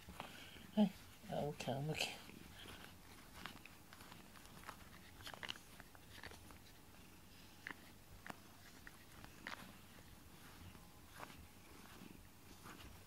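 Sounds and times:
cat biting grooming brush: 2.2s - 10.1s.

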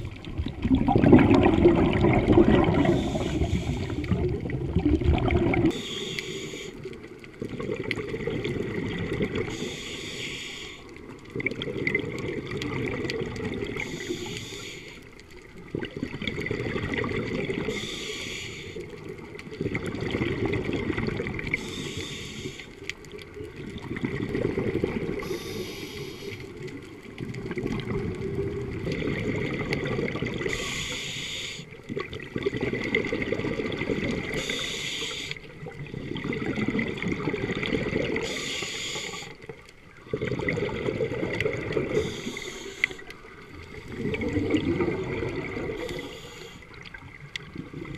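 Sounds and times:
bubbling: 0.0s - 47.9s
low churning of water: 0.0s - 47.9s
diver breathing through regulator: 2.5s - 4.2s, 5.6s - 6.9s, 9.5s - 10.9s, 13.7s - 15.1s, 17.6s - 19.0s, 21.5s - 22.9s, 25.2s - 26.5s, 30.4s - 31.8s, 34.3s - 35.5s, 38.2s - 39.4s, 41.8s - 43.2s, 45.6s - 46.8s.

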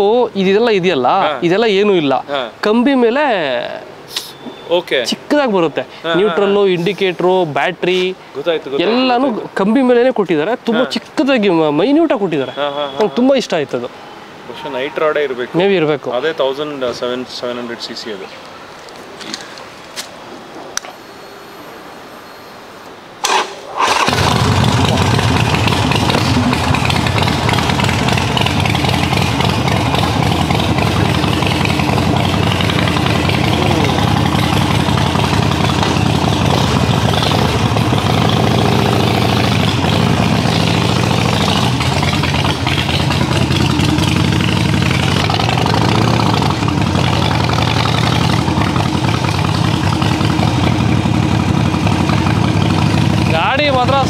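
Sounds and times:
motorcycle engine running: 23.8s - 54.0s.

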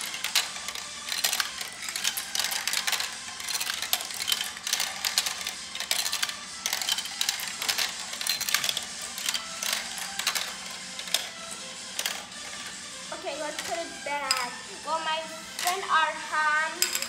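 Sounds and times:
marbles clattering down plastic tracks: 0.0s - 12.7s, 13.5s - 14.6s, 15.5s - 16.0s, 16.7s - 17.0s.

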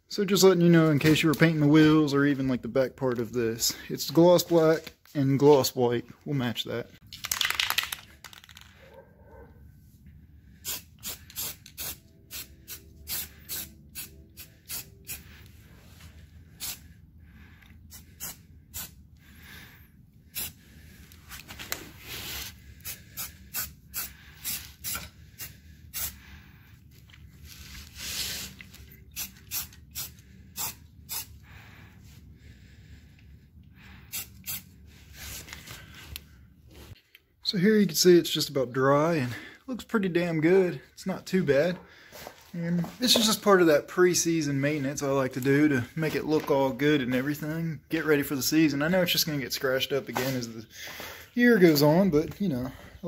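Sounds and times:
spray paint can hissing: 10.6s - 15.2s, 16.6s - 16.8s, 17.9s - 19.0s, 20.4s - 20.6s, 22.8s - 26.2s, 29.1s - 31.3s, 34.1s - 34.7s.

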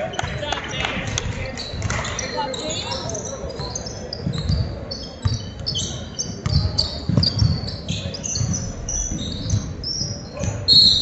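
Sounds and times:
sneaker squeaks: 1.4s - 11.0s
basketball bouncing on gym floor: 3.5s - 11.0s.

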